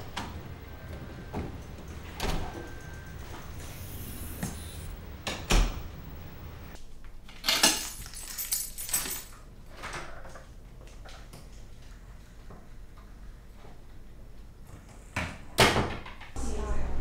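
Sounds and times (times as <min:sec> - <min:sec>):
keys jangling: 0:07.4 - 0:09.4.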